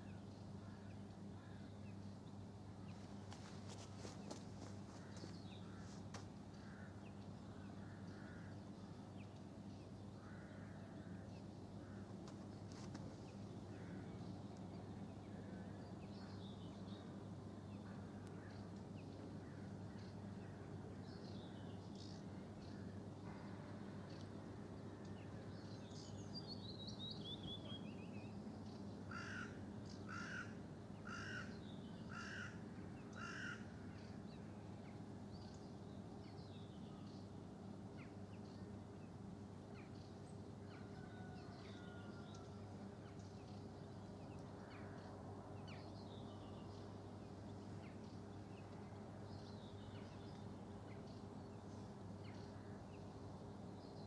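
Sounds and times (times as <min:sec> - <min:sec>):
steady low hum: 0:00.0 - 0:26.4
faint birdsong: 0:00.0 - 0:54.0
crow cawing: 0:29.1 - 0:30.5, 0:31.1 - 0:31.5, 0:32.1 - 0:32.6, 0:33.2 - 0:33.7.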